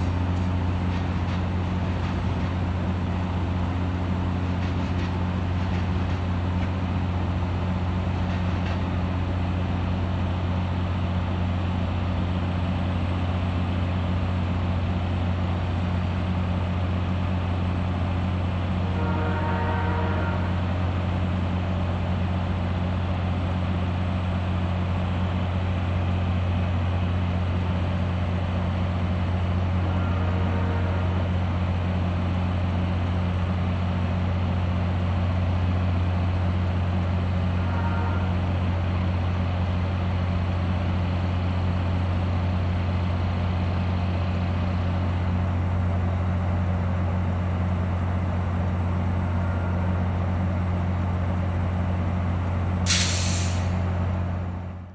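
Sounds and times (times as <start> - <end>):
diesel locomotive idling: 0.0 - 54.9
short sharp noise: 52.9 - 53.9.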